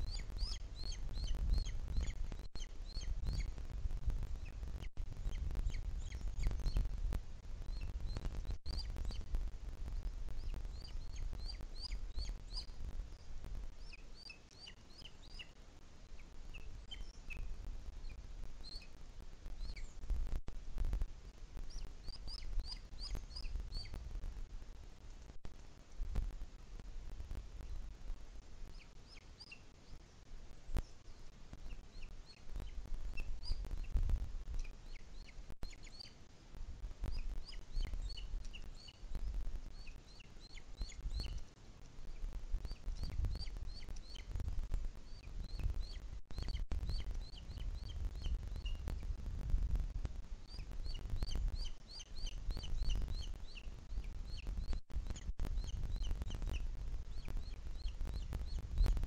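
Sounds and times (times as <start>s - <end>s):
eagle chick calling: 0.0s - 3.6s, 4.2s - 7.0s, 7.6s - 20.0s, 21.6s - 24.0s, 28.7s - 30.0s, 31.6s - 36.2s, 37.0s - 41.5s, 42.1s - 49.2s, 50.4s - 59.0s.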